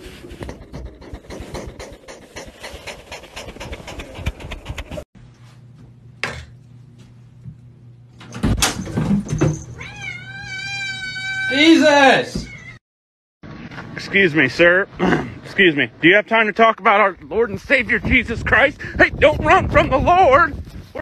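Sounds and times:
cat meowing: 9.8s - 11.8s.

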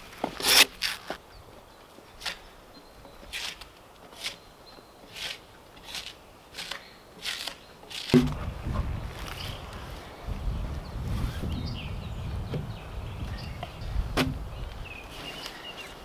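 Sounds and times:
blade scraping bark off log: 0.2s - 1.1s, 3.3s - 4.5s, 5.1s - 8.5s
loud thump: 8.1s - 8.6s, 14.2s - 14.4s
low rumbling noise: 8.2s - 14.8s.

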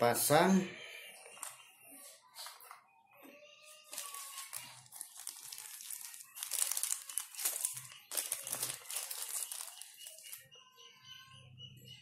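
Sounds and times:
plastic packaging crinkling: 3.9s - 10.4s.

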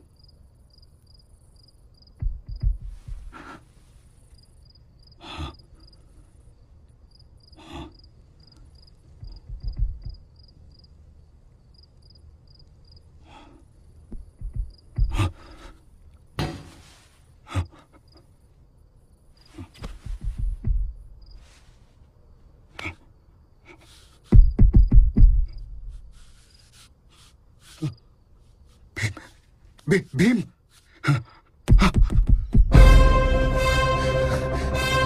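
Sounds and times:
cricket chirping: 0.0s - 16.7s, 17.4s - 32.6s
knocks and low thumps: 2.2s - 3.4s, 9.2s - 10.3s, 14.1s - 15.4s, 19.8s - 21.1s, 24.3s - 25.9s, 31.7s - 33.4s.

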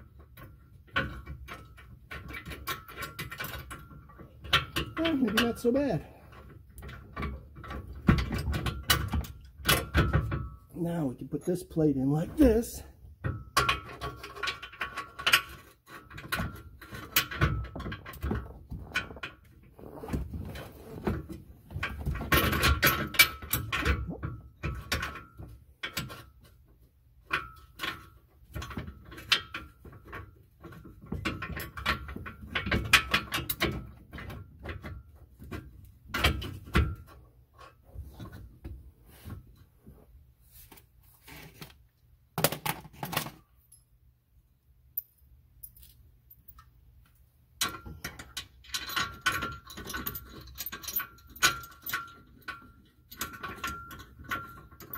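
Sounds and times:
metal plate and bolts clinking: 0.1s - 11.1s, 11.7s - 19.5s, 21.2s - 38.4s, 47.6s - 54.9s.

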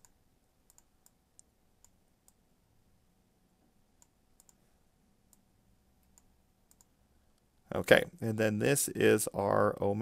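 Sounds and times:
computer mouse clicks: 0.0s - 2.4s, 4.0s - 4.6s, 5.3s - 7.5s.

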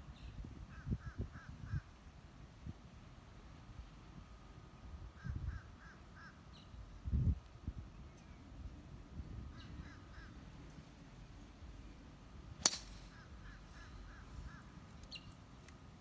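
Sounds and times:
bird calling: 9.5s - 10.5s, 13.0s - 15.4s.

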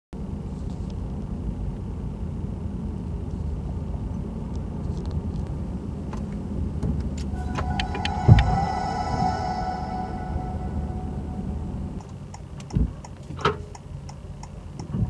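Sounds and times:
low rumble: 7.3s - 12.0s
steady electronic tone: 7.4s - 12.0s.

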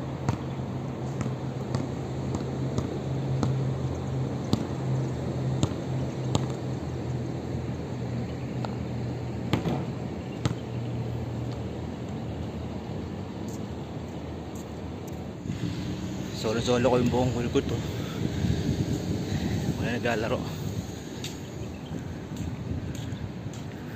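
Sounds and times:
distant city traffic hum: 0.0s - 23.9s
basketball bouncing on a court: 0.2s - 3.7s, 4.4s - 4.9s, 5.5s - 6.8s, 9.4s - 10.8s.

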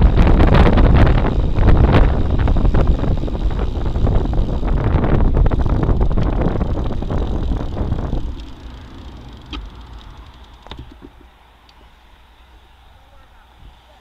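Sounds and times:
wind buffeting microphone: 0.0s - 11.4s
road and tyre noise: 0.0s - 14.0s.

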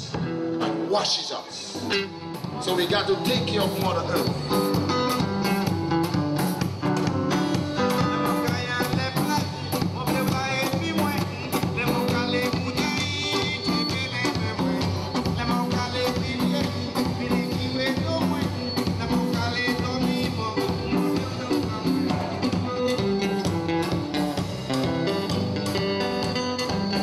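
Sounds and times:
live band playing upbeat song: 0.0s - 27.0s
person singing: 1.8s - 4.8s, 7.3s - 24.0s.

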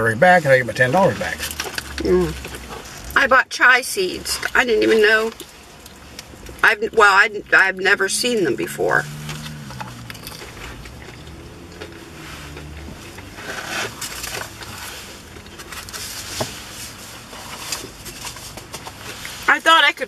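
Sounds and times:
chewing food: 1.1s - 3.2s, 4.2s - 7.0s, 9.0s - 19.5s.

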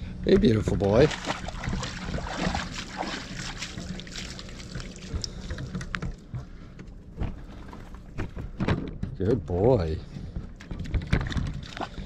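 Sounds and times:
steady low rumble: 0.0s - 12.0s
paws splashing in shallow water: 0.4s - 6.7s, 10.1s - 12.0s.

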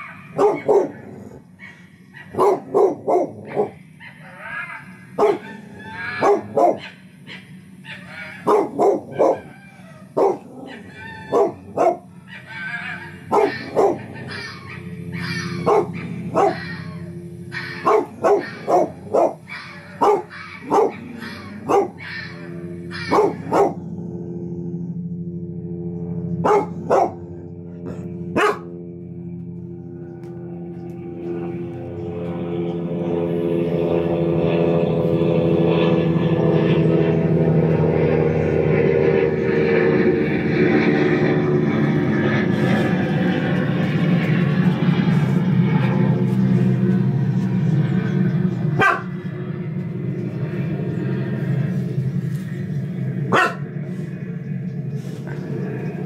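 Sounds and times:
dog barking: 0.0s - 4.4s, 5.2s - 9.6s, 10.2s - 23.8s, 26.4s - 27.2s, 27.9s - 28.7s, 48.8s - 49.1s, 53.3s - 53.7s
steady low drone: 0.0s - 56.0s.

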